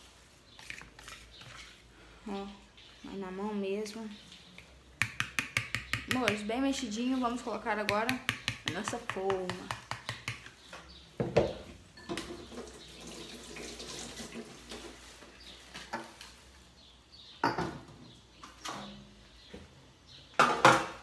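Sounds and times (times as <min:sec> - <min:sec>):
kitchenware clattering: 0:11.2 - 0:12.8, 0:17.4 - 0:17.9, 0:20.4 - 0:21.0.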